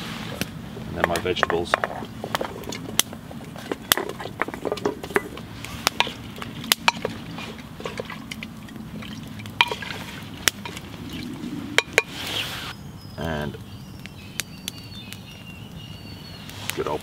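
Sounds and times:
vegetables knocking in metal pot: 0:01.0 - 0:05.4.

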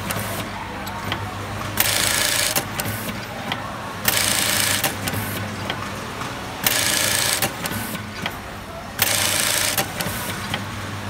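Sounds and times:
sewing machine cycle: 0:00.0 - 0:11.0.

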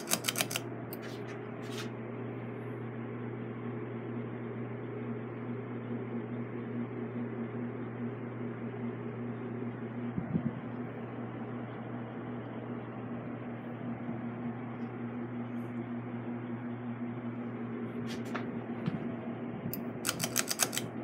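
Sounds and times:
sharp clicks: 0:00.0 - 0:00.6, 0:19.7 - 0:20.9
ceiling fan motor hum: 0:00.0 - 0:21.0.

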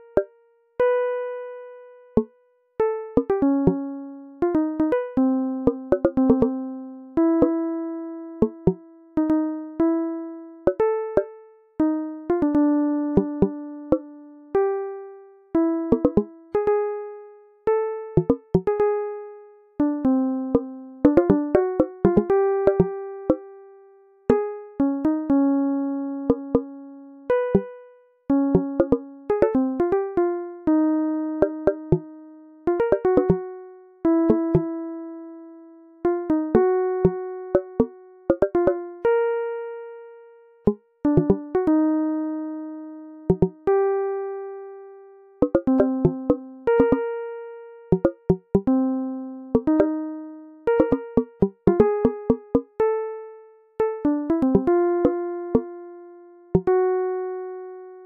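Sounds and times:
sparse struck notes music: 0:15.9 - 0:16.3, 0:18.2 - 0:18.8, 0:28.6 - 0:29.0, 0:31.4 - 0:32.0, 0:45.4 - 0:47.0, 0:47.9 - 0:48.7, 0:50.8 - 0:52.7.

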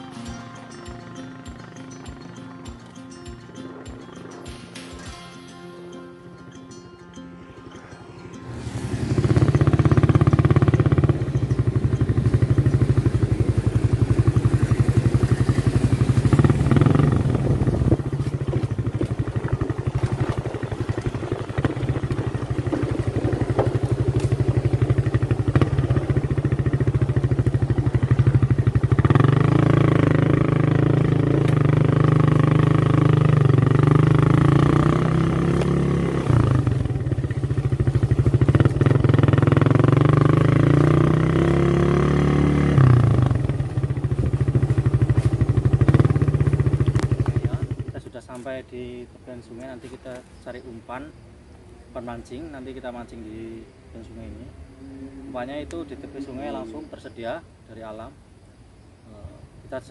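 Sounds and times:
small motorcycle engine running: 0:07.8 - 0:48.2.

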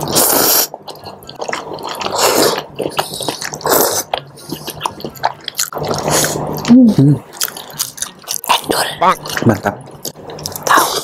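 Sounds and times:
wet chewing: 0:00.0 - 0:11.0.

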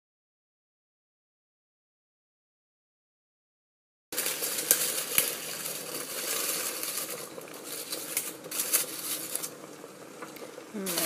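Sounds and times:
leaves rustling and crinkling: 0:04.2 - 0:09.7, 0:10.4 - 0:11.0.

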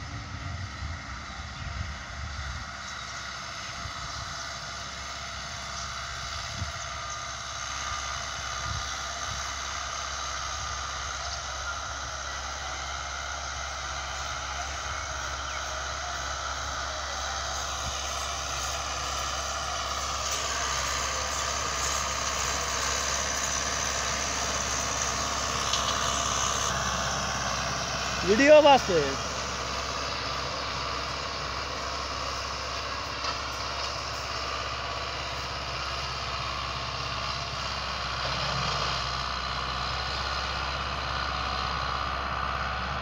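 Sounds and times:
tractor diesel engine under load: 0:00.0 - 0:43.0.

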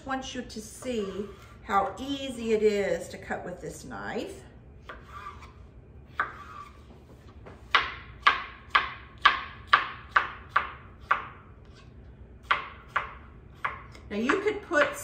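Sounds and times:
knife chopping on cutting board: 0:04.8 - 0:05.5, 0:06.1 - 0:15.0.

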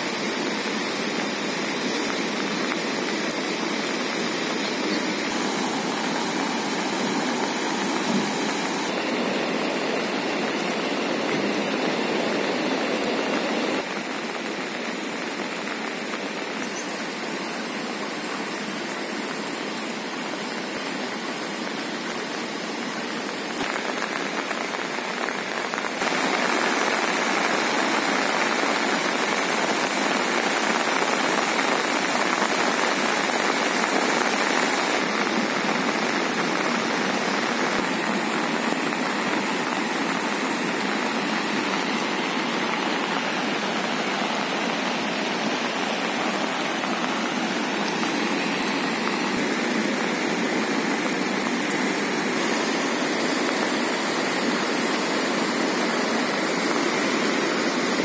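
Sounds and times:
fast-flowing river in flood: 0:00.0 - 0:58.0
rain: 0:00.0 - 0:58.0.

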